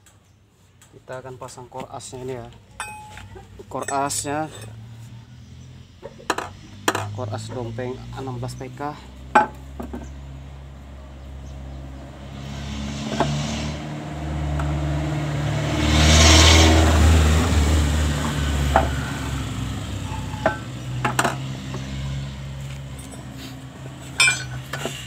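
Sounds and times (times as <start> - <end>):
light metal clinks: 2.7 - 4.8, 24.2 - 24.6
vehicle engine droning past: 4.0 - 25.0.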